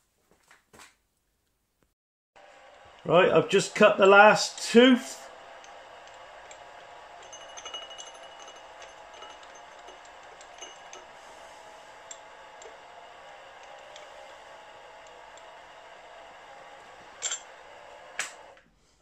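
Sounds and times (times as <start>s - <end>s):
low machine hum: 2.4s - 19.0s
light metallic clinks: 5.7s - 11.2s.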